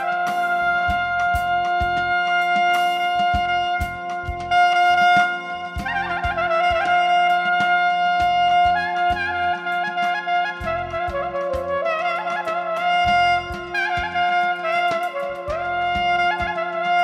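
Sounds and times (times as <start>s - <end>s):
clarinet melody: 0.0s - 17.0s
electronic drums: 0.0s - 17.0s
keyboard: 0.0s - 17.0s.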